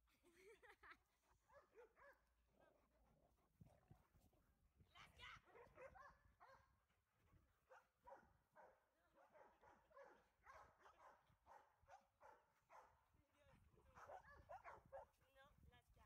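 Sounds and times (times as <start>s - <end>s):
dogs barking and yipping: 1.5s - 2.2s, 5.3s - 6.7s, 7.7s - 12.9s, 14.0s - 15.1s.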